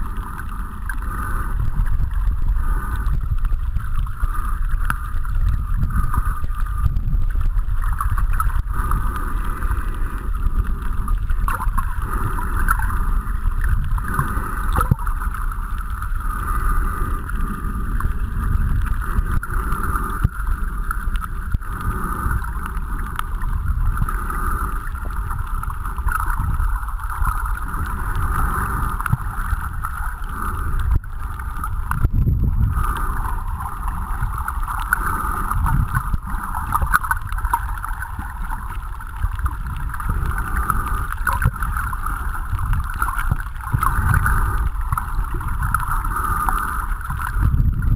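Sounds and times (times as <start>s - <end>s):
constant hiss: 0.0s - 47.9s
muffled underwater rumble: 0.0s - 47.9s.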